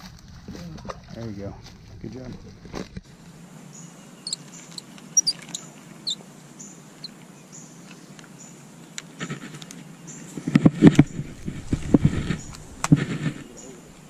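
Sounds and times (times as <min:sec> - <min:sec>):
insects buzzing: 0:01.2 - 0:14.0
bird chirps: 0:03.7 - 0:08.6, 0:13.4 - 0:14.0.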